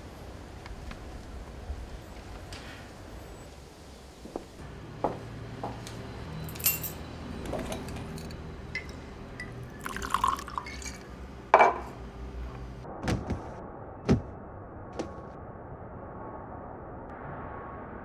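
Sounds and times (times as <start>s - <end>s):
glass clinks and knocks: 6.5s - 11.9s
liquor pouring into a glass: 9.7s - 11.1s.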